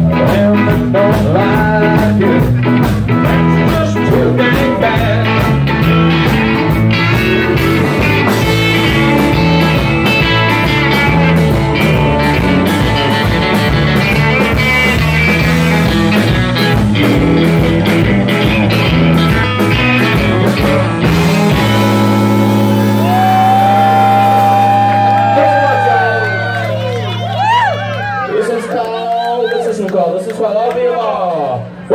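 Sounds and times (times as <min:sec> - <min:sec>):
band playing blues-rock: 0:00.0 - 0:28.7
ringing guitar chord: 0:07.0 - 0:27.4.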